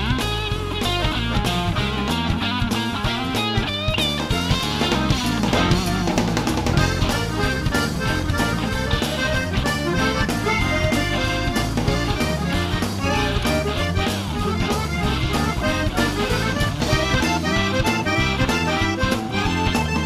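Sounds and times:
background music with drums: 0.0s - 20.0s.

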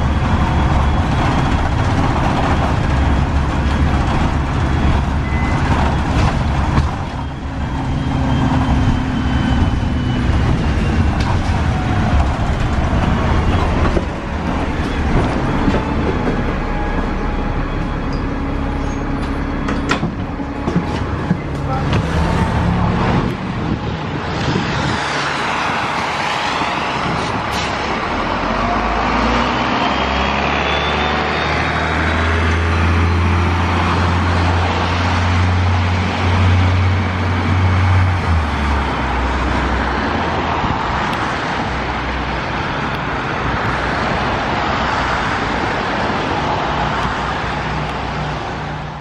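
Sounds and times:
bus diesel engine drone: 0.0s - 49.0s
road noise: 0.0s - 49.0s
rising whine: 4.8s - 38.1s.

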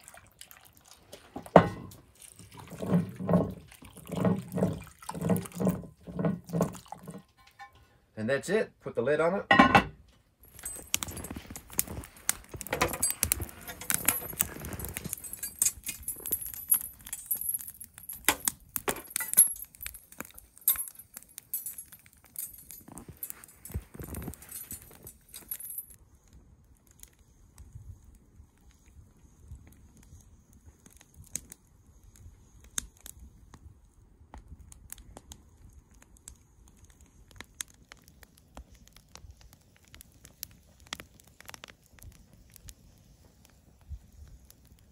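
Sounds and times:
wood fire crackling: 0.0s - 44.9s
metal clinking and jangling: 10.5s - 12.0s, 12.6s - 26.0s.

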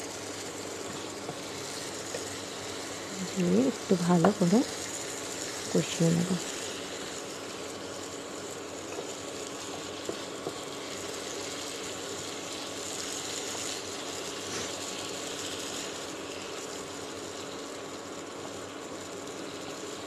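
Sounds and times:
food sizzling in oil: 0.0s - 20.0s.

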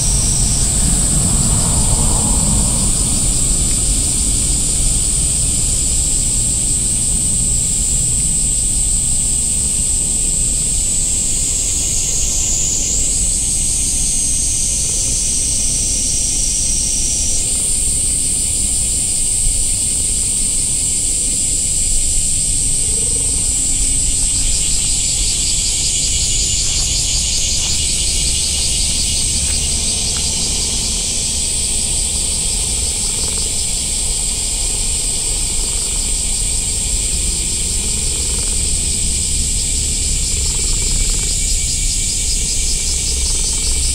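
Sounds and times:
low rumble: 0.0s - 8.9s, 23.0s - 43.9s
high-pitched insect chorus: 0.0s - 43.9s.

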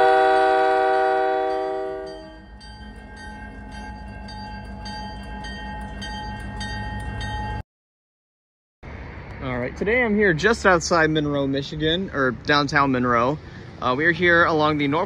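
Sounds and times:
locomotive horn: 0.0s - 2.4s
freight train rumbling past: 0.0s - 7.6s, 8.8s - 15.0s
railroad crossing bell: 0.0s - 7.6s.

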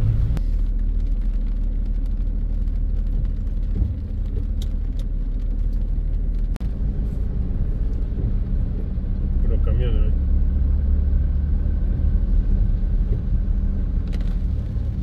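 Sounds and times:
car engine rumble: 0.0s - 15.0s
wet tyres on road: 0.0s - 15.0s.

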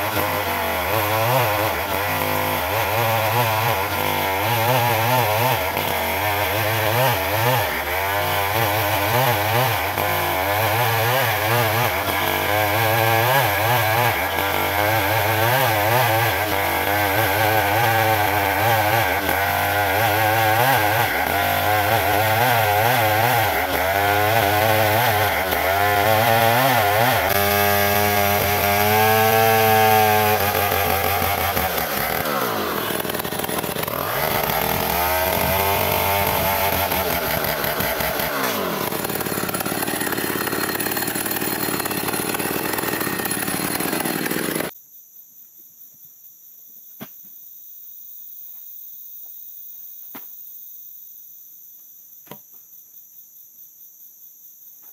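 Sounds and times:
chainsaw cutting wood: 0.0s - 44.7s
insects chirping: 44.7s - 54.9s.

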